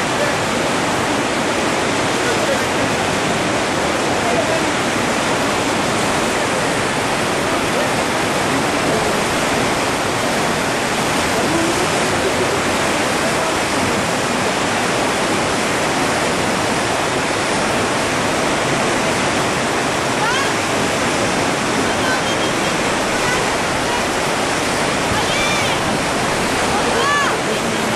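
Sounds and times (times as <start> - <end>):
whitewater rapids rushing: 0.0 - 27.9.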